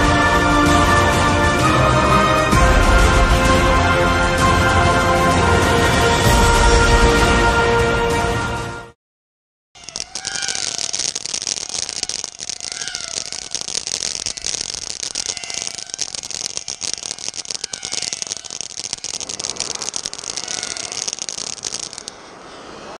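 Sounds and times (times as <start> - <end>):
firework fountain hissing and crackling: 9.8 - 22.8.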